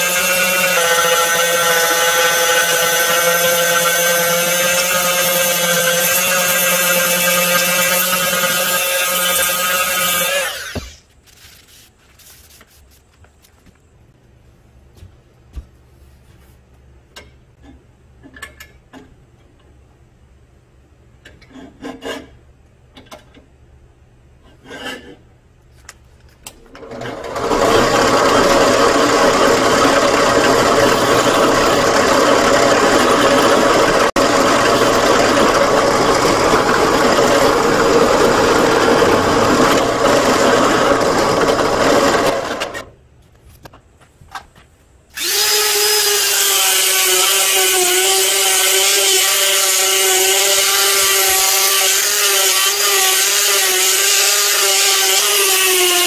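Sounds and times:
drill press boring metal: 0:26.8 - 0:42.9, 0:45.2 - 0:56.0
second drill starting: 0:26.8 - 0:42.9, 0:45.2 - 0:55.5.

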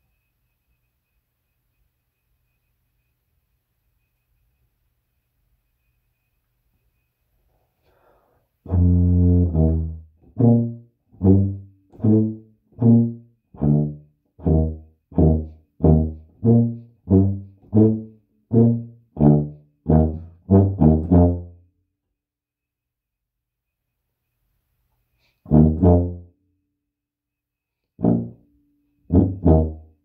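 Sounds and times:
solo tuba melody: 0:08.6 - 0:21.7, 0:25.4 - 0:26.4, 0:28.0 - 0:30.0.

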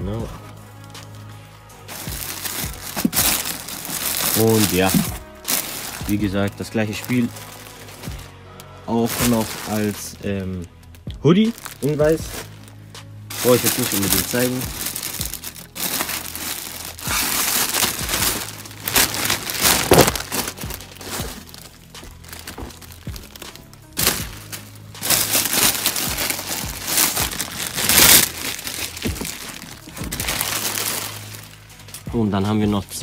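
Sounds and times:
quiet background music: 0:00.0 - 0:33.0
packaging and clothing rustling: 0:00.1 - 0:10.6, 0:11.3 - 0:32.0.

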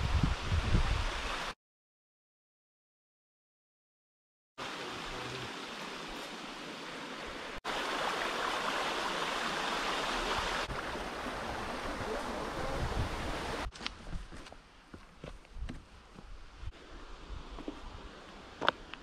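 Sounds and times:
stream water rushing: 0:04.6 - 0:13.7.

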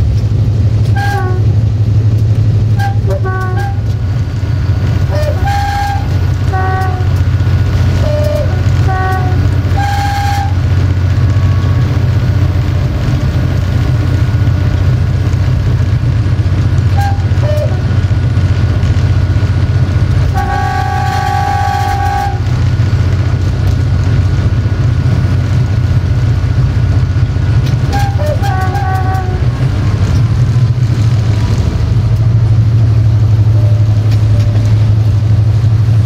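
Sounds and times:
diesel locomotive engine drone: 0:00.0 - 0:36.0
air horn toots and blast: 0:00.9 - 0:01.6, 0:02.8 - 0:04.0, 0:05.1 - 0:07.2, 0:08.0 - 0:10.6, 0:11.2 - 0:12.0, 0:16.9 - 0:18.0, 0:20.3 - 0:22.5, 0:27.9 - 0:29.6.

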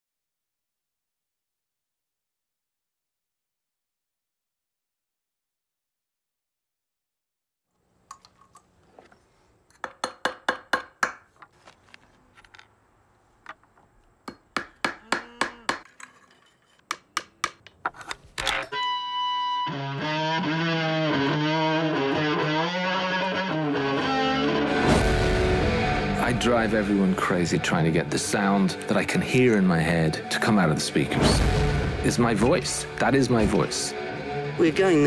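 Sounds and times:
distorted electric guitar: 0:18.7 - 0:28.9, 0:31.3 - 0:35.0.

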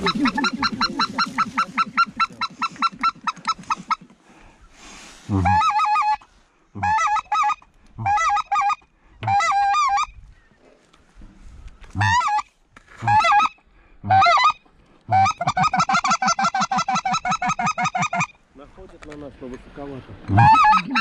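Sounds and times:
goose call honks: 0:00.0 - 0:04.0, 0:05.4 - 0:06.2, 0:06.8 - 0:10.1, 0:12.0 - 0:13.5, 0:20.3 - 0:21.0
goose call clucks: 0:00.0 - 0:04.2, 0:05.3 - 0:06.2, 0:06.8 - 0:10.1, 0:12.0 - 0:18.4, 0:20.3 - 0:21.0.

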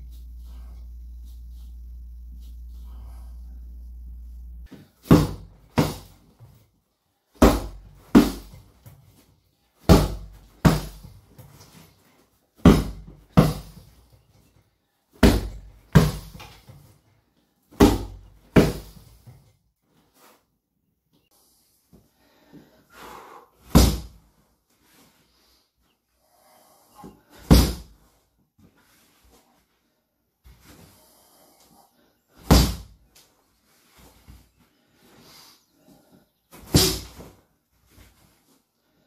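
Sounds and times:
punches thudding on heavy bag: 0:05.0 - 0:06.2, 0:07.4 - 0:08.7, 0:09.8 - 0:11.2, 0:12.6 - 0:13.9, 0:15.2 - 0:16.5, 0:17.8 - 0:19.2, 0:23.7 - 0:24.2, 0:27.4 - 0:27.9, 0:32.4 - 0:33.0, 0:36.6 - 0:37.3.

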